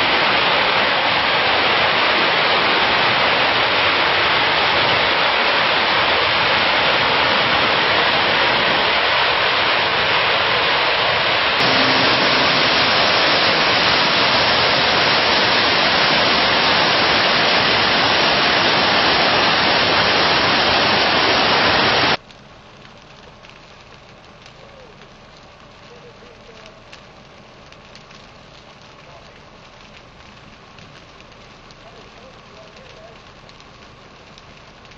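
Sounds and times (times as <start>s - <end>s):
rapids rushing: 0.0s - 22.2s
faint hiss: 11.6s - 22.2s.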